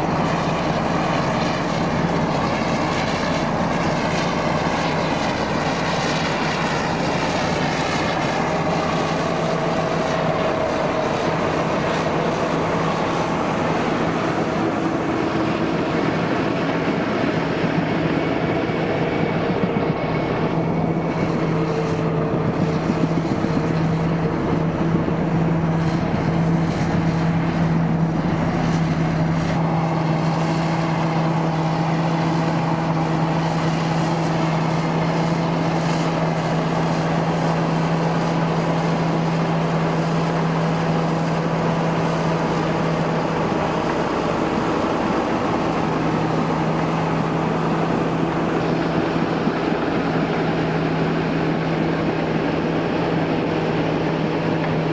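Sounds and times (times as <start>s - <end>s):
diesel engine running under load: 0.0s - 54.9s.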